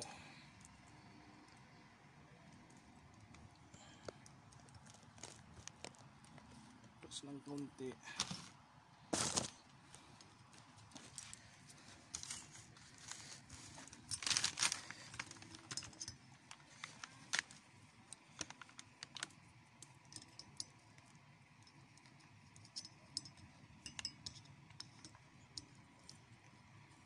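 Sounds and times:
metallic tool clicks and taps: 19.8 - 20.8, 22.5 - 26.2.

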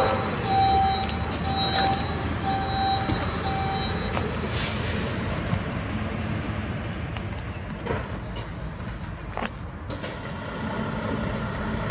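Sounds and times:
alarm beeping: 0.0 - 4.3
diesel engines running: 0.0 - 11.9
air brake hiss: 4.4 - 5.4.

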